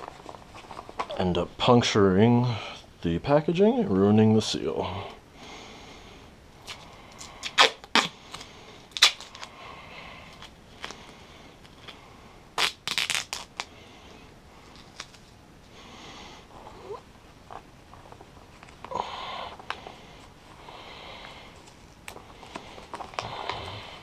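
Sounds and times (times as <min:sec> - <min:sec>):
plastic bag crinkling: 0:00.0 - 0:01.2, 0:21.5 - 0:24.0
tape pulled off roll and torn: 0:06.6 - 0:09.5, 0:12.6 - 0:13.7, 0:14.7 - 0:15.4.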